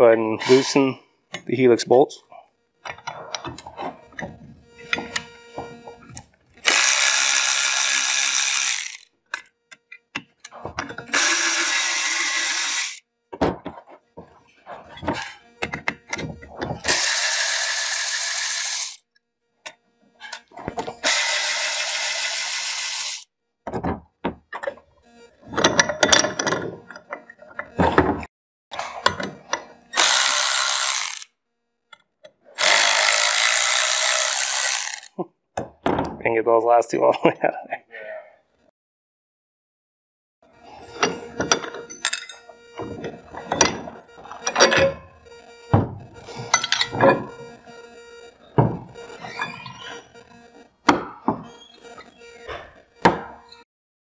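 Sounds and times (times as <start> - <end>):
electric ratchet running: 5.1 - 9.1, 10.9 - 13.1, 16.8 - 19.1, 21.0 - 23.3, 29.9 - 31.3, 32.6 - 35.1.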